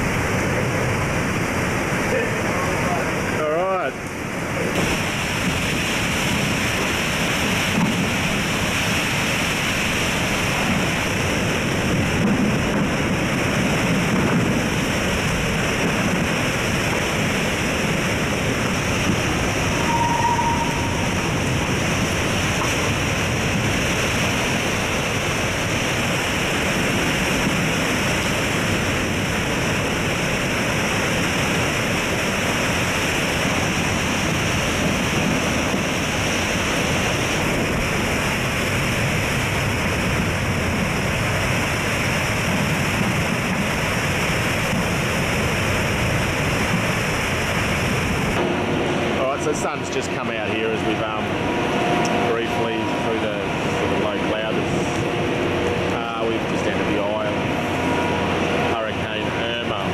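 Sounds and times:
heavy rain: 0.0 - 59.9
strong wind: 0.0 - 59.9.

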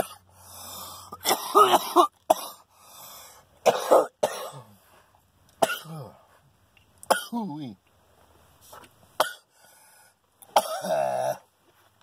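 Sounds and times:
man coughing into sleeve: 1.2 - 2.6, 3.6 - 4.8, 5.6 - 6.1, 7.1 - 7.5, 10.5 - 11.4.

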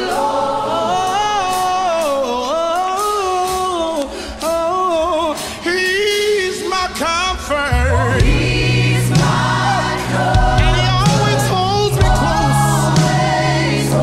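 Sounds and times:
choir singing gospel: 0.0 - 14.0
bass line: 7.7 - 14.0.

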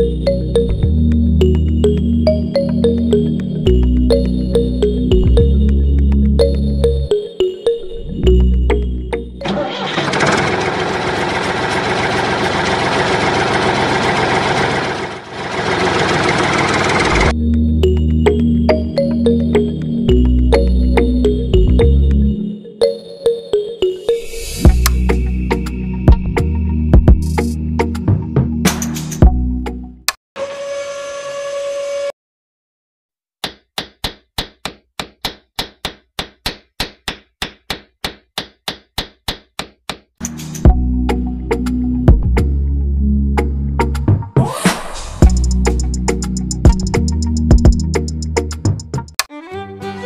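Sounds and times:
diesel tractor engine idling: 9.4 - 17.3.

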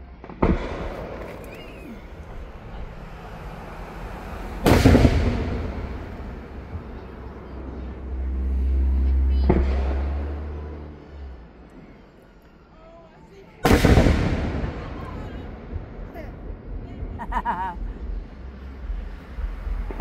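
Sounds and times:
low rumble: 0.0 - 12.6, 13.6 - 20.0
firework shells bursting: 4.4 - 6.8.

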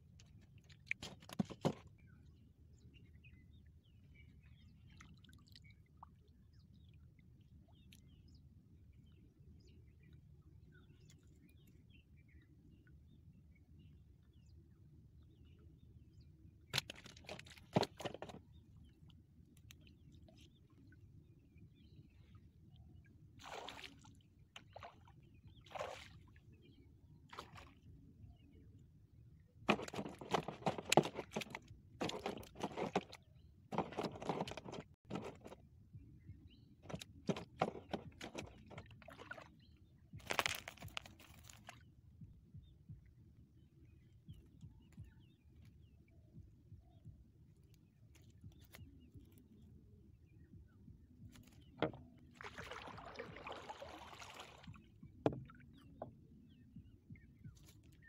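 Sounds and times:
wet net knocks and splashes: 0.9 - 1.9, 16.7 - 18.4, 29.7 - 35.6, 40.2 - 41.8, 51.4 - 55.6
wet net dripping and rustling: 40.2 - 41.8.

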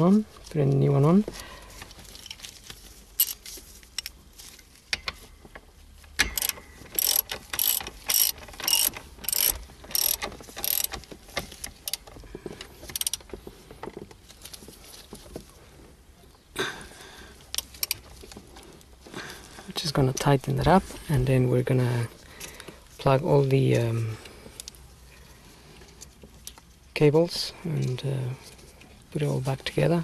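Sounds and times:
socket ratchet clicking: 6.2 - 12.1, 12.8 - 13.3, 17.5 - 18.0.

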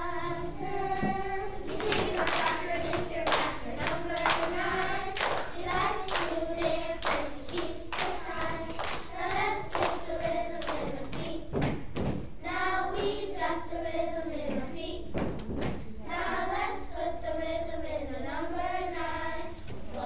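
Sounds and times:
children's choir singing: 0.0 - 11.7, 12.4 - 15.3, 16.0 - 20.0
hand claps: 1.7 - 11.4.

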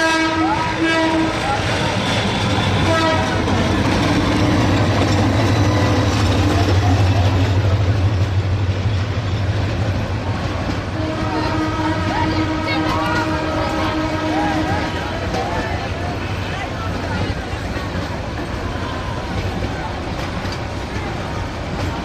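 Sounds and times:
train horn: 0.0 - 1.7, 2.6 - 3.8, 10.8 - 15.4
diesel train engine rumble: 0.0 - 22.0.

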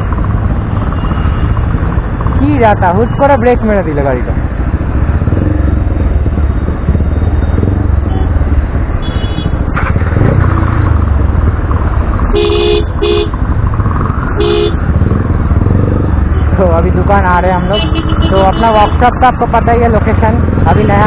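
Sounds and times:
motorcycle engine low rumble: 0.0 - 21.0
vehicle horn honking: 9.0 - 9.6, 12.3 - 13.3, 14.4 - 14.8, 17.7 - 19.0.

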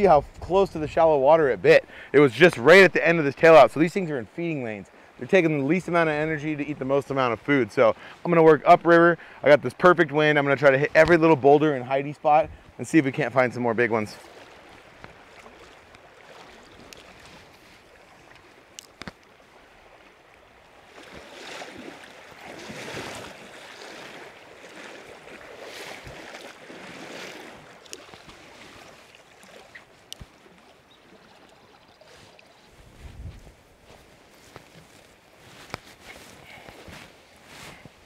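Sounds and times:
boots splashing through water: 14.2 - 20.1, 20.7 - 31.6, 33.1 - 38.0
river rushing: 19.4 - 30.9.

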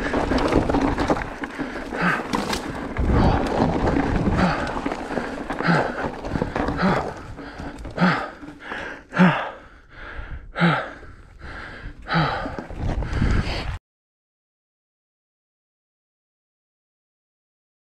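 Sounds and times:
trail rumble: 0.0 - 13.8
wind: 0.0 - 13.8
person breathing hard: 1.5 - 13.8.

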